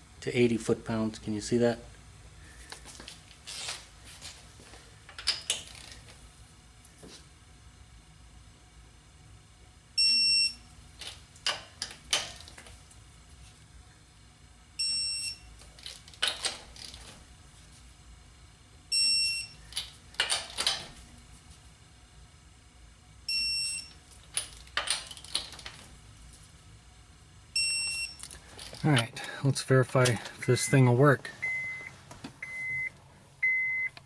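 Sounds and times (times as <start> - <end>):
torque wrench beeps: 10.0 - 10.6, 14.8 - 15.5, 18.9 - 19.6, 23.3 - 24.0, 27.6 - 28.2, 30.4 - 33.9.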